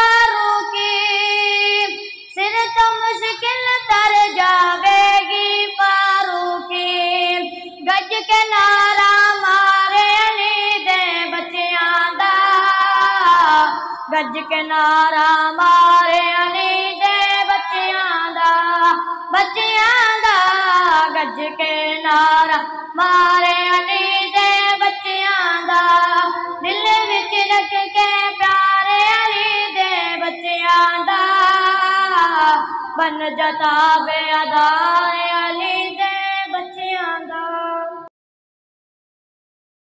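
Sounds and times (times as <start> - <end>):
boy singing into a microphone: 0.0 - 38.1.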